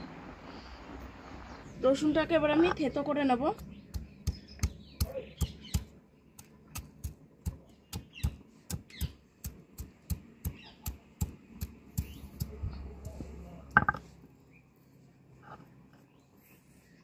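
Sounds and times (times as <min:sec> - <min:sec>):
stone pestle pounding on stone: 0:03.5 - 0:05.9, 0:06.7 - 0:14.0.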